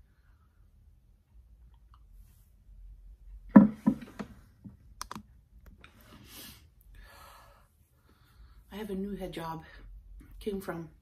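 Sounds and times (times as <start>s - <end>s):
knocks on wooden table: 3.5s - 4.3s.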